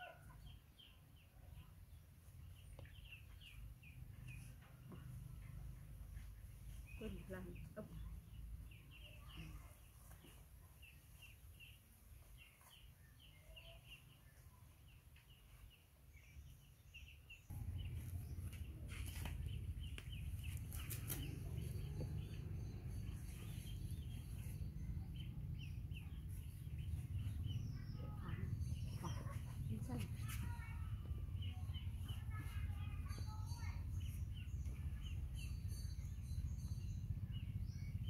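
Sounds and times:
small birds chirping: 0.0s - 38.0s
low rumble: 17.5s - 30.1s.

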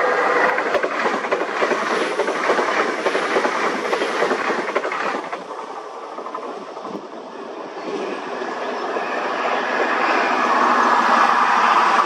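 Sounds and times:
train wheels clattering over rail joints: 0.4s - 7.1s.

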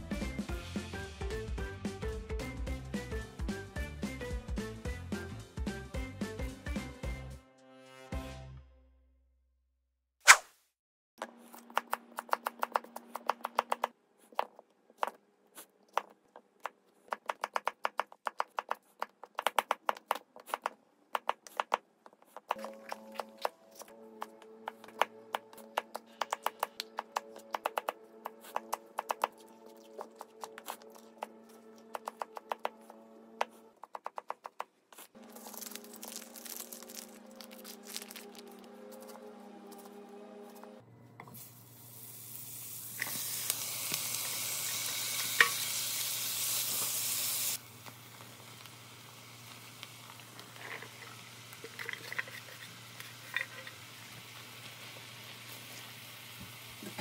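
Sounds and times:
soft background music: 22.5s - 33.8s, 35.2s - 41.1s
knife chopping on cutting board: 24.8s - 29.3s
plastic packaging crinkling: 35.2s - 39.1s.

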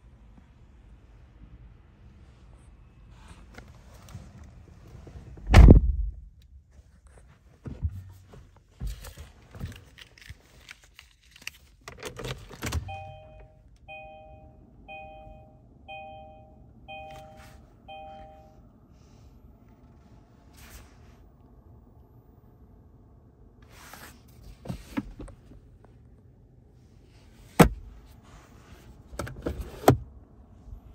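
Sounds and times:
heavy thump: 5.4s - 6.2s
clicks and rustling in car: 6.8s - 13.5s, 24.2s - 26.0s
car dashboard warning chime: 12.7s - 18.6s.

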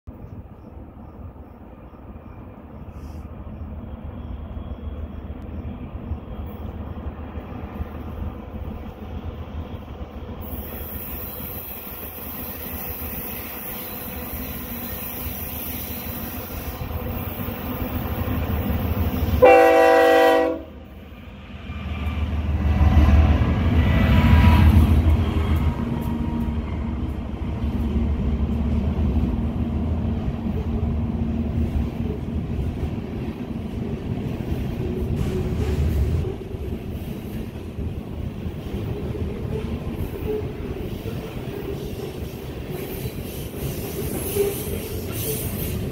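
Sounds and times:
diesel locomotive rumbling: 0.1s - 45.9s
train horn: 19.3s - 21.0s.

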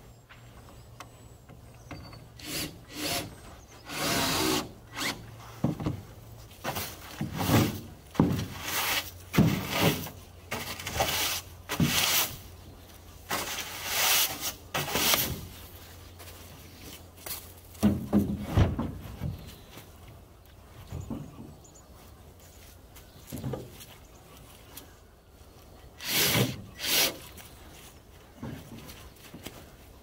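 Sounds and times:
wire brush scrubbing wood panels: 8.5s - 12.4s.

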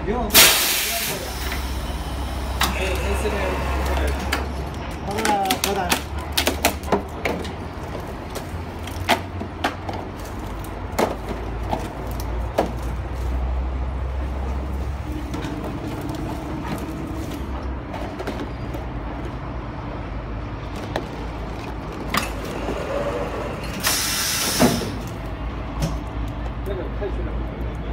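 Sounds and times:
loud hiss: 0.4s - 3.8s, 23.8s - 25.0s.

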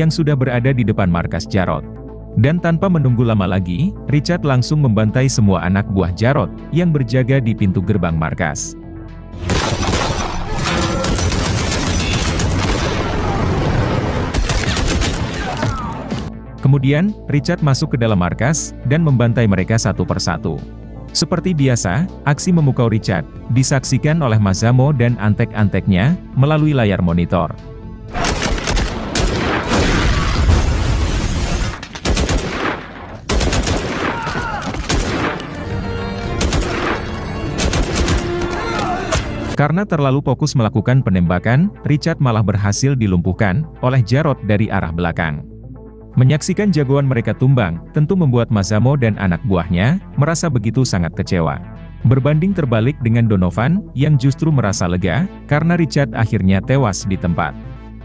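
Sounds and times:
automatic rifle fire: 9.4s - 13.3s, 14.3s - 15.5s, 28.2s - 35.5s, 36.4s - 38.4s
pistol gunfire: 9.4s - 13.3s, 14.3s - 15.6s, 28.2s - 30.5s, 31.4s - 35.6s, 36.4s - 38.5s.

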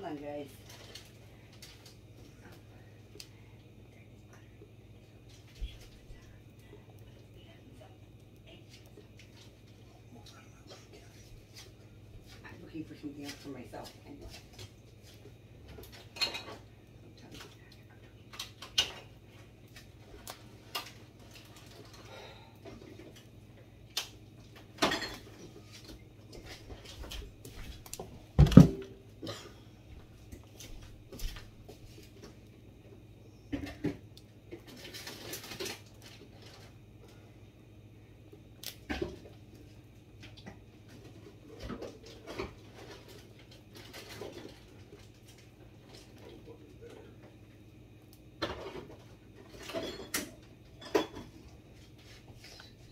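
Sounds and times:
steady low hum: 0.0s - 52.9s
kitchen items clattering: 15.6s - 16.7s, 24.8s - 27.7s, 48.4s - 51.5s
dishes and utensils clinking: 16.0s - 16.6s.

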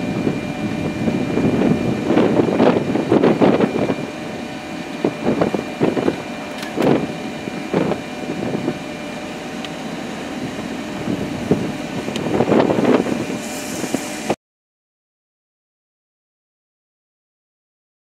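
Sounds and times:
steady rushing background: 0.0s - 13.6s
storm wind gusting: 0.0s - 14.4s.

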